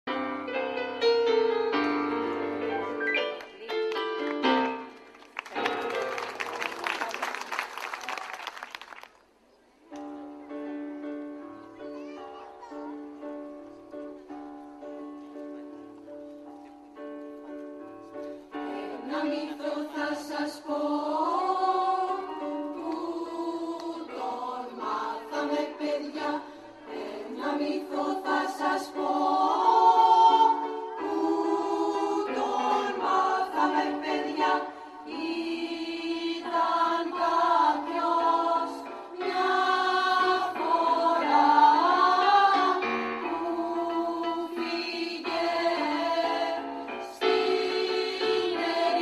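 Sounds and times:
mixed choir singing: 18.5s - 49.0s.

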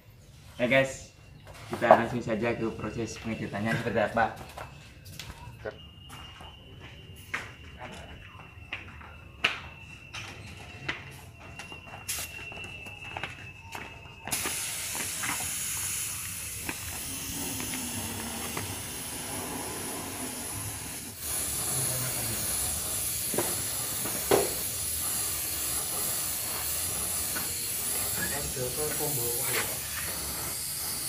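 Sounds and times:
paint spray gun hissing: 14.3s - 31.0s.

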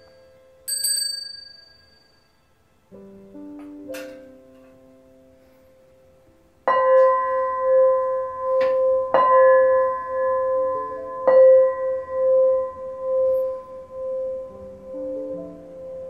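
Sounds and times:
metal bell ringing: 0.0s - 2.5s.

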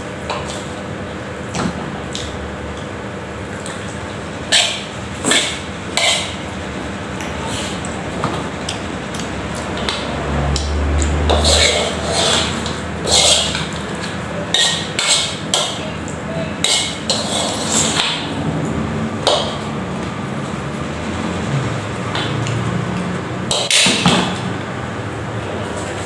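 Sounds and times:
metal spoon scraping wok: 4.4s - 6.5s, 11.0s - 18.3s.

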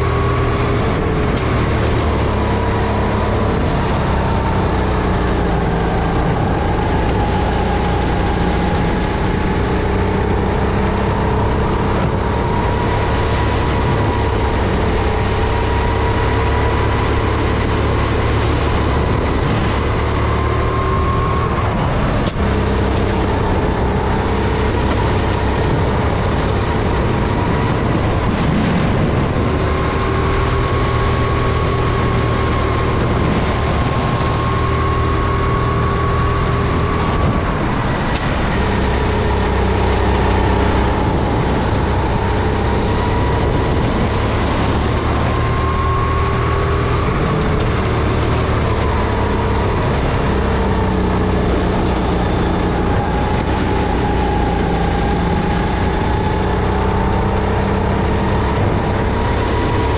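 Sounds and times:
kart engine racing: 0.0s - 59.9s.

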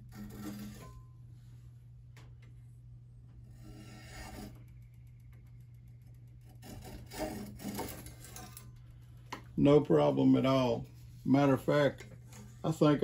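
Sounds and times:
bamboo stick scraping blade edge: 0.0s - 1.1s, 3.5s - 4.7s, 6.4s - 8.7s.

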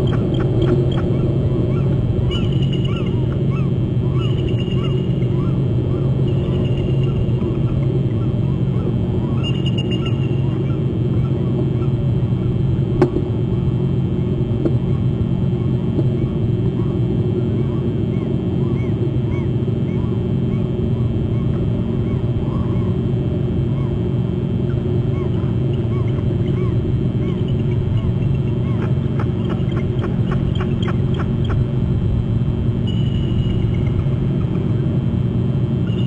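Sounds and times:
faint bird chirps: 0.0s - 12.0s, 24.7s - 31.6s, 32.9s - 34.6s.

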